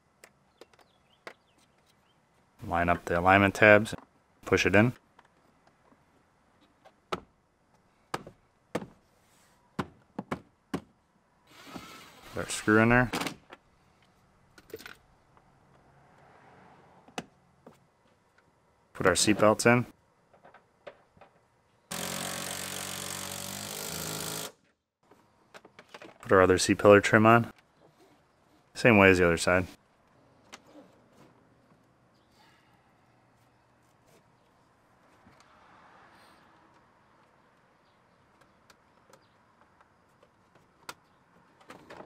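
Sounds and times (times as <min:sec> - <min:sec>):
impact wrench whirring: 0:21.9 - 0:24.6.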